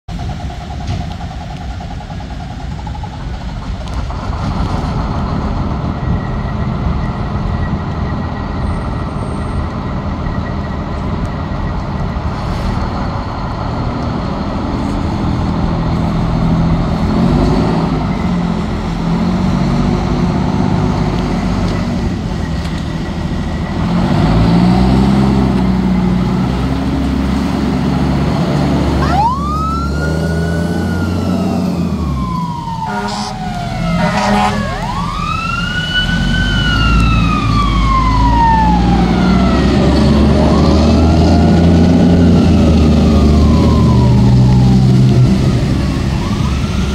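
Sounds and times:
fire truck diesel engine revving: 0.1 - 46.9
siren wailing: 28.8 - 46.9
short siren blasts: 28.9 - 41.2, 42.0 - 46.9.

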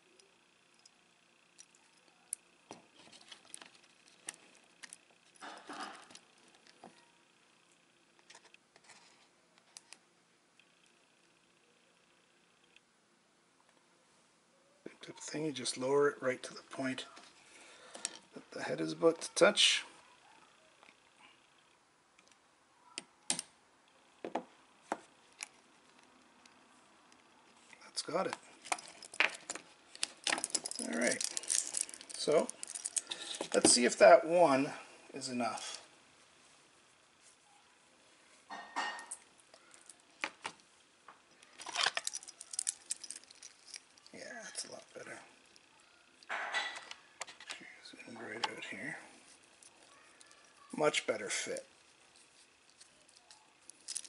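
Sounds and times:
small metal parts clicking: 0.2 - 6.9, 28.6 - 33.6, 41.3 - 47.6, 52.2 - 54.0
rustling: 27.4 - 33.9, 34.5 - 54.0
watch bracelet links clinking: 28.6 - 33.4, 41.4 - 44.9, 52.7 - 54.0.

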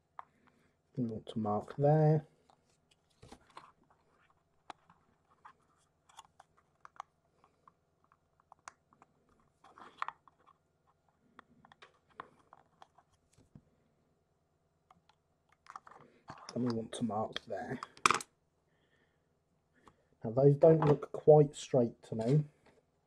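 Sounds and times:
plastic clicks and rustles: 2.4 - 13.6, 14.9 - 18.3.

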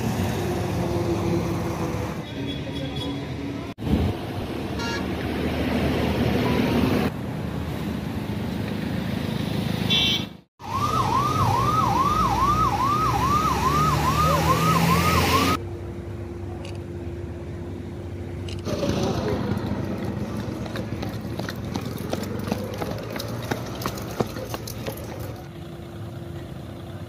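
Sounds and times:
vehicle engine and road noise: 0.0 - 27.0
emergency vehicle siren wailing: 10.6 - 15.6.

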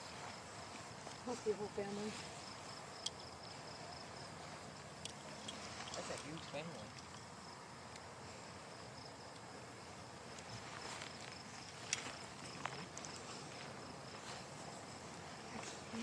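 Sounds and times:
footsteps through grass: 0.0 - 3.7, 10.4 - 16.0
crickets chirping: 0.0 - 16.0.

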